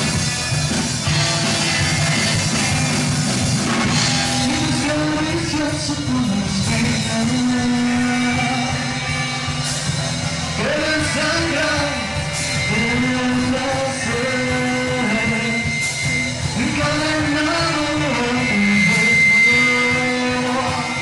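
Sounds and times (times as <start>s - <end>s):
drums: 0.0s - 21.0s
electric guitars: 0.0s - 21.0s
person singing: 4.3s - 9.7s, 10.4s - 21.0s.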